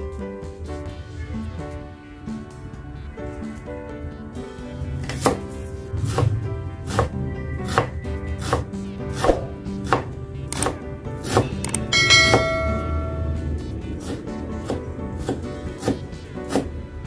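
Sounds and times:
knife chopping on wooden board: 5.1s - 5.4s, 6.1s - 7.1s, 7.7s - 11.5s
short bright ringing chime: 11.9s - 13.4s.

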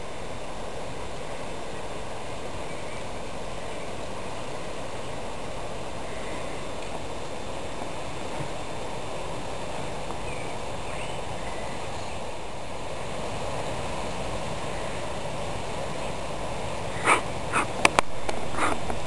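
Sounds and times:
outdoor background noise: 0.0s - 19.0s
dog barks: 17.0s - 17.7s, 18.5s - 18.8s.

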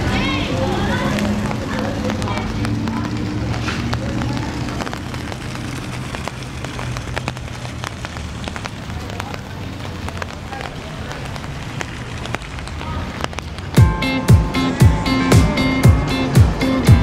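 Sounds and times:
falling water pattering: 0.0s - 17.0s
sharp drop-like ticks: 1.1s - 14.7s.

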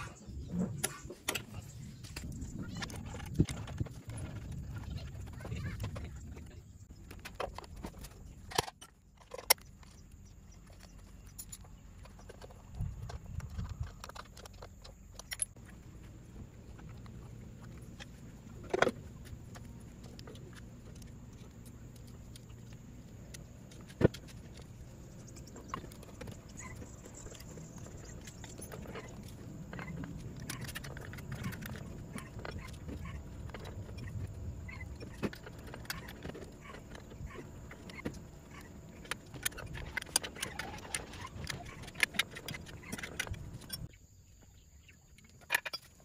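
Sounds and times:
tools clinking on metal parts: 13.9s - 15.6s.

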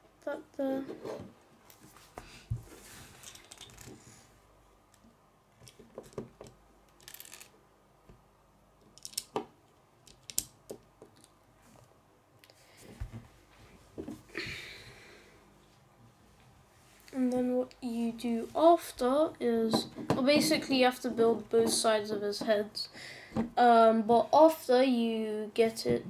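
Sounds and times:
plastic bricks clicking: 3.2s - 3.9s, 5.6s - 7.5s, 8.8s - 11.3s.

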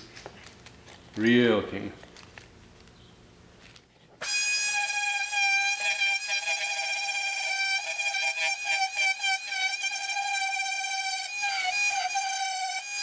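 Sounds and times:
faint handling noise: 0.0s - 4.2s.

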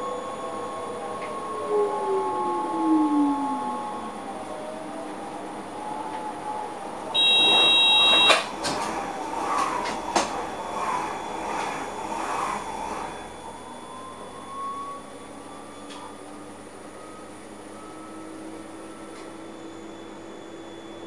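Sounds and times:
passing train rumble: 0.0s - 17.5s
faint rising whine: 0.0s - 21.0s
shrill high tone: 7.2s - 8.4s.

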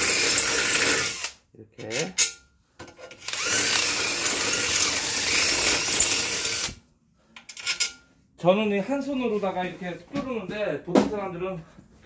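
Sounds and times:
power drill boring: 0.0s - 1.4s, 3.2s - 6.8s.

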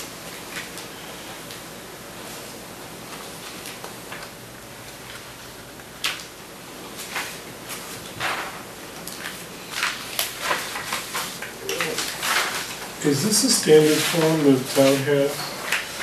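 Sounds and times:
paper rustling: 6.9s - 16.0s.

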